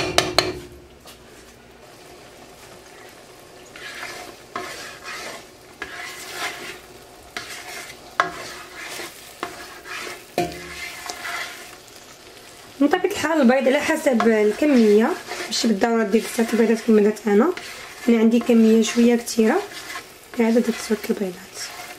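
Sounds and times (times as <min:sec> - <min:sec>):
spatula knocking against pot: 0:00.0 - 0:00.8
mixture sizzling: 0:00.0 - 0:21.9
spatula stirring and scraping: 0:01.3 - 0:21.9.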